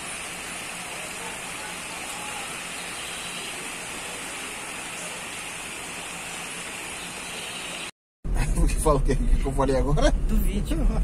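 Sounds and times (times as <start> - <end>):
stream running over rocks: 0.0 - 7.9.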